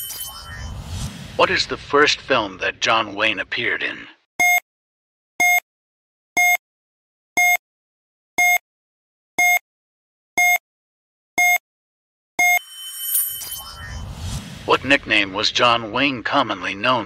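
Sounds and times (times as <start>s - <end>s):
short electronic beeps: 0.0s - 0.8s, 4.4s - 4.6s, 5.4s - 5.6s, 6.4s - 6.6s, 7.4s - 7.6s, 8.4s - 8.6s, 9.4s - 9.6s, 10.4s - 10.6s, 11.4s - 11.6s, 12.4s - 14.2s.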